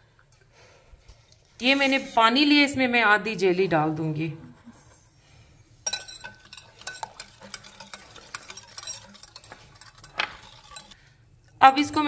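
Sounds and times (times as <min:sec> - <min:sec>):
whisk scraping glass bowl: 0:05.8 - 0:11.0.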